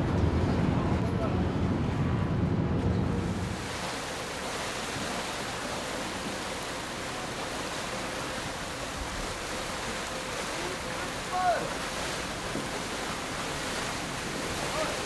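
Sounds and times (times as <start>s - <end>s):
water rushing: 3.0s - 15.0s.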